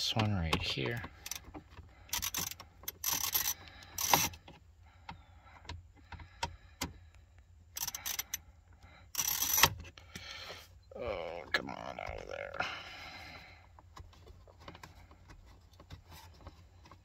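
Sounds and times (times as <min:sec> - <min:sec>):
socket ratchet clicking: 0:02.1 - 0:04.4, 0:07.8 - 0:08.4.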